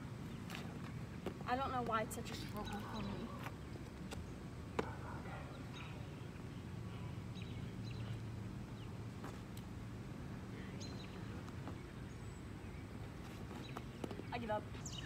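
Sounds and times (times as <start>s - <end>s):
bird chirps: 10.8s - 12.9s.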